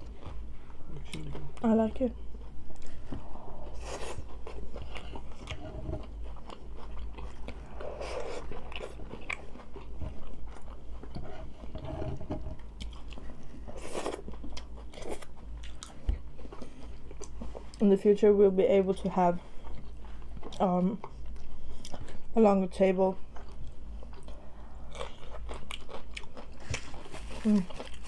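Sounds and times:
chewing and crunching: 0.0s - 17.9s, 19.0s - 22.3s, 23.2s - 28.0s.

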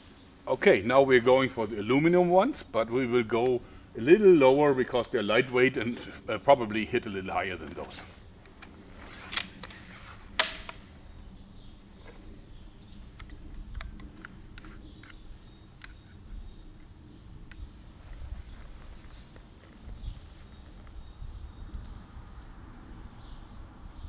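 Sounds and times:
crossbow cocking clicks: 10.4s - 10.8s, 13.1s - 16.1s.

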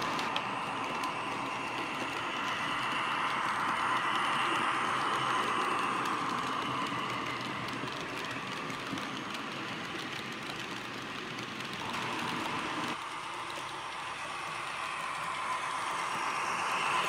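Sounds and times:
model train wheels clicking: 0.0s - 17.0s.

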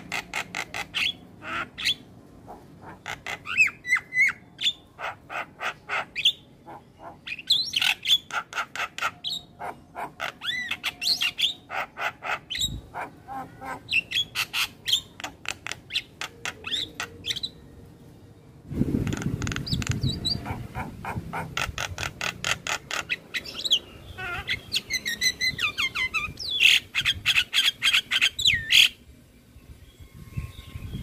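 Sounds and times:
myna chirping and whistling: 19.1s - 29.0s.

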